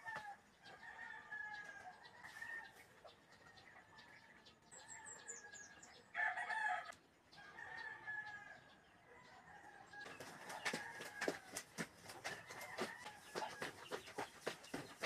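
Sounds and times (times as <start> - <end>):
rooster crowing: 4.8 - 11.5, 12.4 - 13.6.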